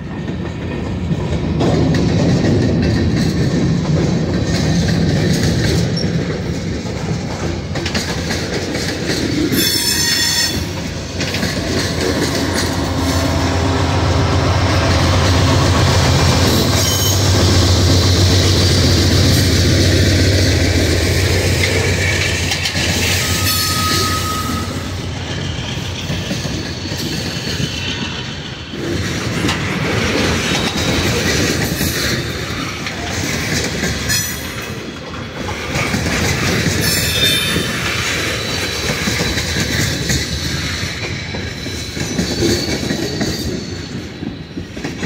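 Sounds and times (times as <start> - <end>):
rail-joint clickety-clack: 0.0 - 45.0
train wheels rumbling: 0.0 - 45.0
locomotive engine drone: 10.6 - 26.2
wheel squeals: 22.7 - 28.3, 36.8 - 44.8.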